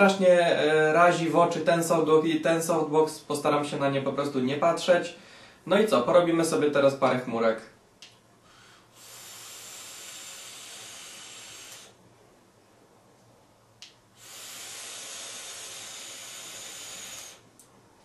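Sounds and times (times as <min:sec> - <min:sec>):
vape draw hissing: 0:08.9 - 0:12.0, 0:14.2 - 0:17.5.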